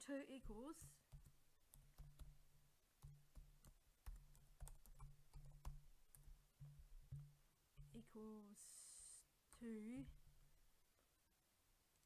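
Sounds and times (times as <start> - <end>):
typing on keyboard: 0.8 - 2.4, 3.0 - 6.4.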